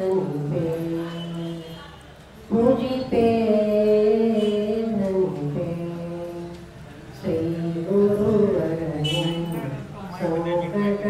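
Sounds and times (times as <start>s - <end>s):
woman singing into microphone: 0.0s - 1.8s, 2.5s - 11.0s.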